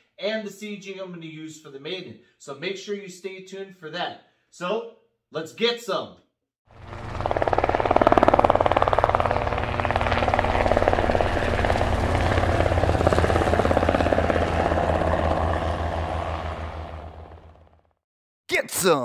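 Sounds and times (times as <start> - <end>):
low engine hum: 6.7 - 17.8
helicopter rotor chopping: 6.7 - 17.9.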